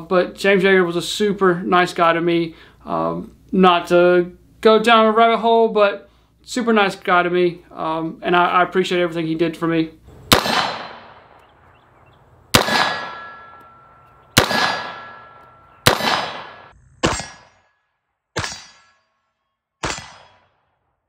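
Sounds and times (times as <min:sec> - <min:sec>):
rifle shots: 0:10.3 - 0:11.5, 0:12.5 - 0:13.7, 0:14.3 - 0:17.6, 0:18.4 - 0:18.9, 0:19.8 - 0:20.6
steel target ringing: 0:12.5 - 0:17.8, 0:18.4 - 0:19.2.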